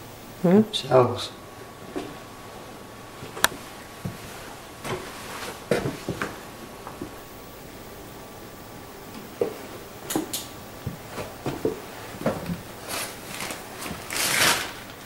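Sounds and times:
rushing rustle: 12.8s - 15.0s.

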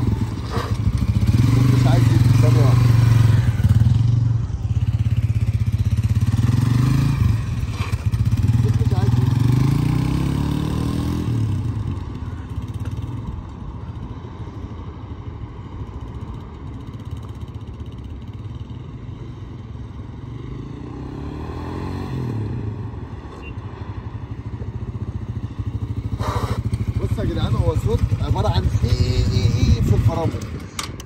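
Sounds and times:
motorcycle engine putter: 29.9s - 31.0s.

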